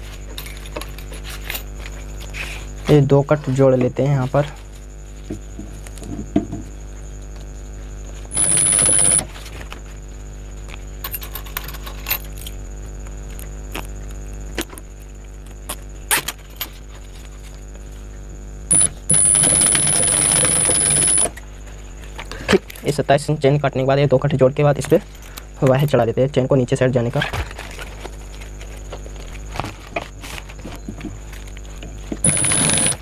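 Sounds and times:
steady low hum: 0:00.0 - 0:33.0
sewing machine stitching with whine: 0:08.3 - 0:09.3, 0:18.7 - 0:21.4, 0:32.2 - 0:33.0.

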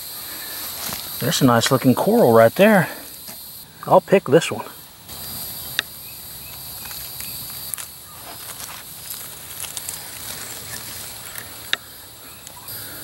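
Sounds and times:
rustles in leaf litter: 0:00.0 - 0:01.3, 0:06.4 - 0:13.0
high-pitched insect chorus: 0:00.0 - 0:13.0.

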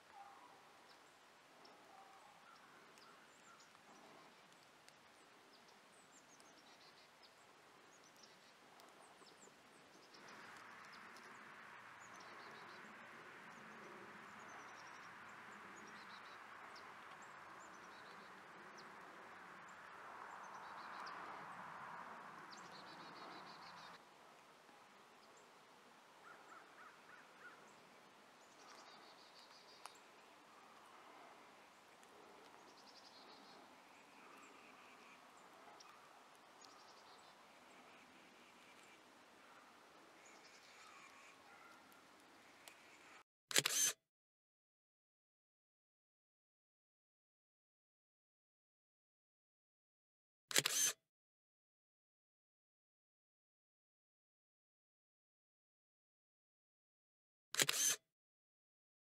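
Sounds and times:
small birds chirping: 0:00.0 - 0:21.6, 0:22.4 - 0:43.9.

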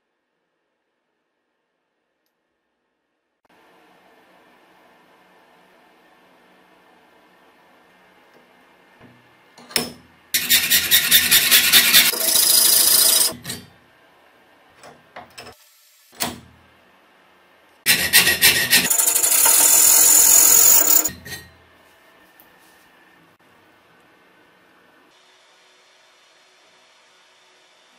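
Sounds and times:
rotary tool cutting steel: 0:10.4 - 0:13.6, 0:17.9 - 0:21.3.

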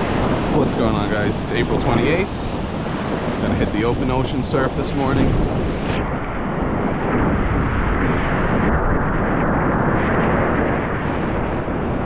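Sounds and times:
ocean surf breaking: 0:00.0 - 0:12.0
wind rumble on microphone: 0:00.0 - 0:12.0.

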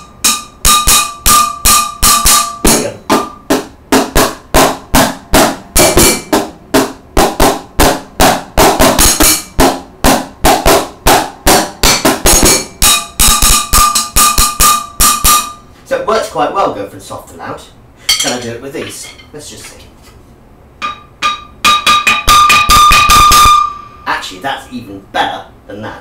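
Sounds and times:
drumsticks beating metal pot: 0:00.0 - 0:07.6, 0:08.2 - 0:09.8, 0:10.5 - 0:15.6, 0:20.8 - 0:23.8
drumsticks beating cardboard box: 0:00.0 - 0:15.5.

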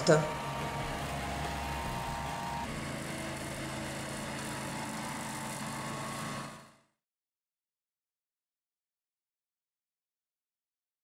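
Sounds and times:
mower engine running: 0:00.0 - 0:07.0.

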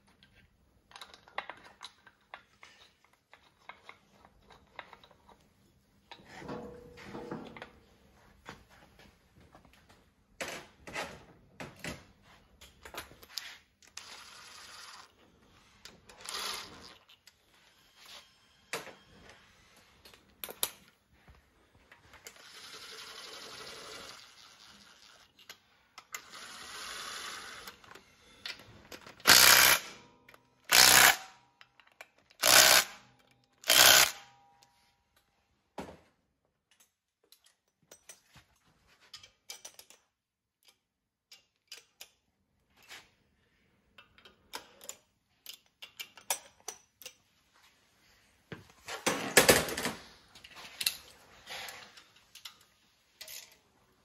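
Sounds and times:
tools and metal parts handled: 0:00.0 - 0:07.9, 0:31.6 - 0:32.4, 0:36.5 - 0:43.2, 0:43.9 - 0:47.8, 0:48.7 - 0:54.0.

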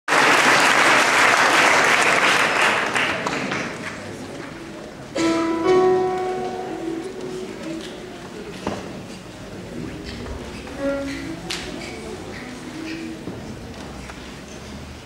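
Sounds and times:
audience applauding: 0:00.1 - 0:04.3.

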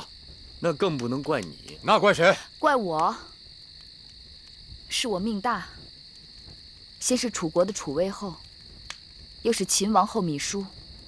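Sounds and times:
crickets chirring: 0:00.0 - 0:11.0
woman speaking: 0:02.6 - 0:03.3, 0:04.9 - 0:05.8, 0:07.0 - 0:08.4, 0:09.5 - 0:10.7.

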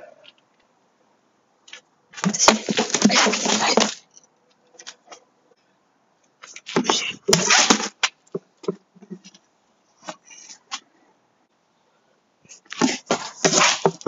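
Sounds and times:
cones skidding over concrete: 0:02.1 - 0:04.1, 0:06.4 - 0:08.2, 0:12.7 - 0:14.0
cane striking plastic cones: 0:02.2 - 0:04.1, 0:06.7 - 0:09.2, 0:12.7 - 0:14.0.

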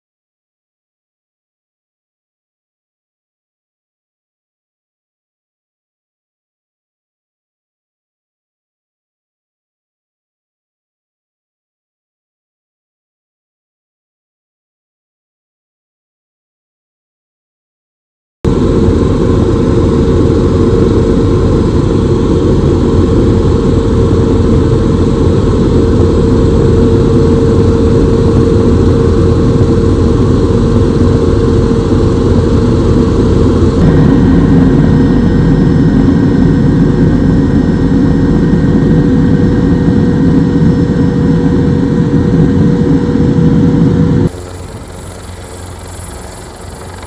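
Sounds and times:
helicopter engine and rotor: 0:18.5 - 0:47.0.

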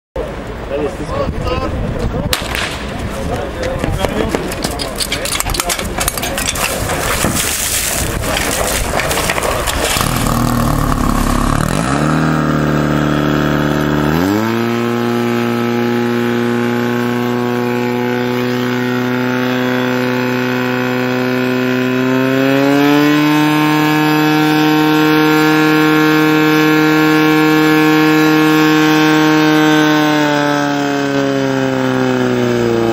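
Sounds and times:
pump engine at high revs: 0:05.5 - 0:32.9
loud rushing noise: 0:06.7 - 0:14.8.

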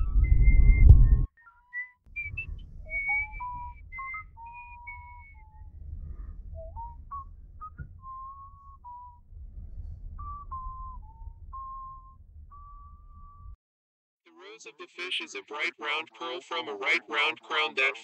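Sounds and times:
faint low rumble: 0:00.0 - 0:01.3, 0:02.1 - 0:13.6
person whistling a tune: 0:00.0 - 0:09.2, 0:10.2 - 0:13.1.

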